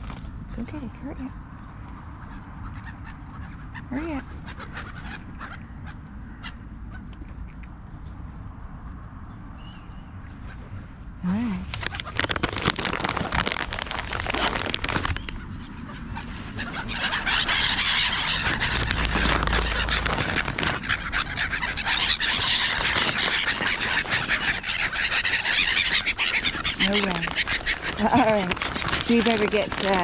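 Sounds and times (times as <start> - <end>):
gulls calling: 1.4 - 7.4, 11.8 - 30.0
flurry of wingbeats: 11.6 - 30.0.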